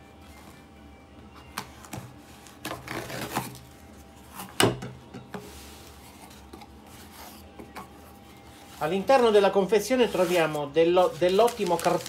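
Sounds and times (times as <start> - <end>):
cardboard scraping and rustling: 1.7 - 4.6, 5.4 - 12.0
knife slitting packing tape: 2.5 - 3.7.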